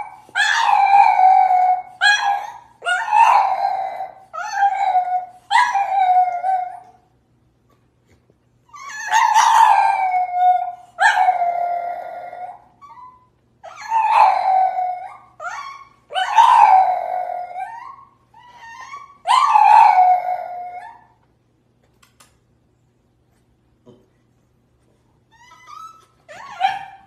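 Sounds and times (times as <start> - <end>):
dog howling: 0.0 - 7.0, 8.8 - 21.1.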